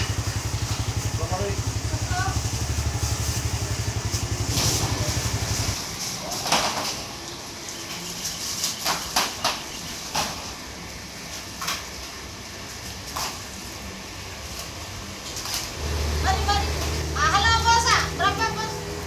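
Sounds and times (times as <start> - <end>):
motorcycle engine idling: 0.0 - 5.8.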